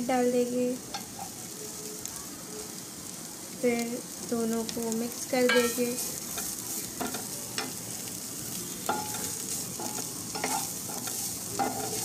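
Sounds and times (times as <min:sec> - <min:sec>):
vegetables sizzling in a frying pan: 0:00.0 - 0:12.0
spatula scraping a pan: 0:05.4 - 0:12.0.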